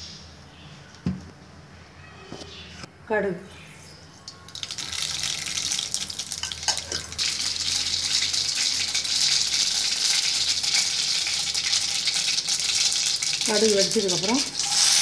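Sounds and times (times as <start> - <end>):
seeds sizzling in hot oil: 4.5 - 15.0.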